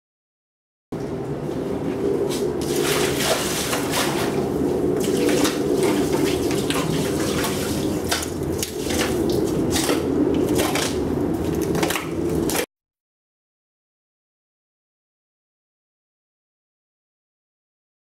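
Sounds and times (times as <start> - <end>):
water sloshing and splashing: 2.2 - 12.7.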